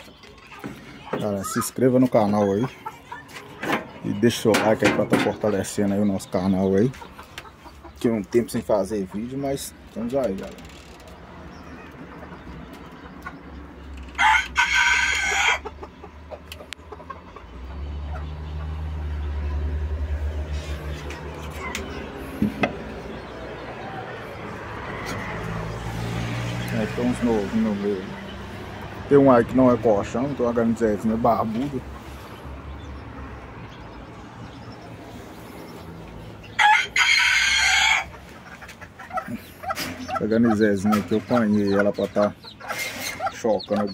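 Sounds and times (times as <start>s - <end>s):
cockerel crowing: 14.0s - 15.8s, 36.4s - 38.4s.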